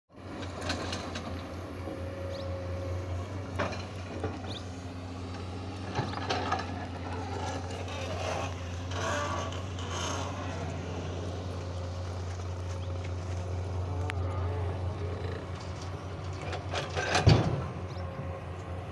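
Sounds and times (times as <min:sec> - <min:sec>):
diesel engine running: 0:00.1 - 0:18.9
bucket scraping dirt: 0:05.3 - 0:13.6.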